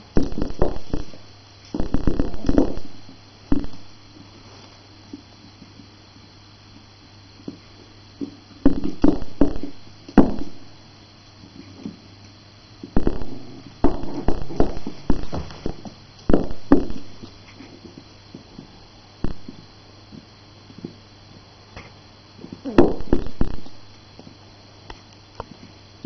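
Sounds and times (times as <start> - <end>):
puppy thumps and scuffles on floor: 15.3 - 16.0.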